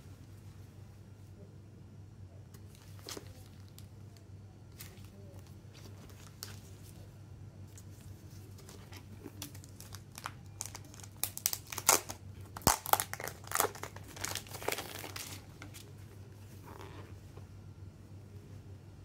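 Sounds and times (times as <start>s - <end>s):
plastic wrapping crinkling: 7.9s - 15.9s
plastic wrap sharp snap: 9.4s - 15.4s.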